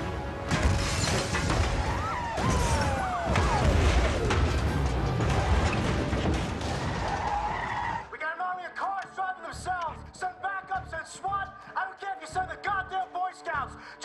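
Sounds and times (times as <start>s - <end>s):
cars crashing and metal crunching: 0.0s - 8.1s
action film music: 0.0s - 8.2s, 8.8s - 14.0s
explosions rumbling: 0.5s - 7.2s.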